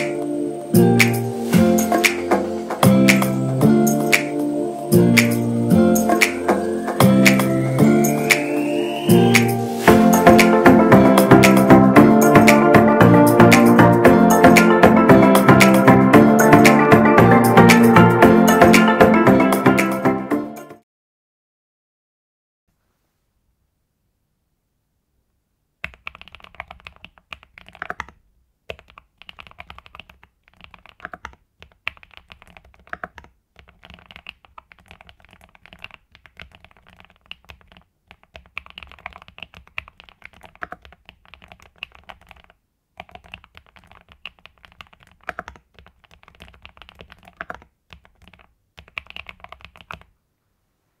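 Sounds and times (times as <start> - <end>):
mechanical keyboard typing: 25.8 - 50.1.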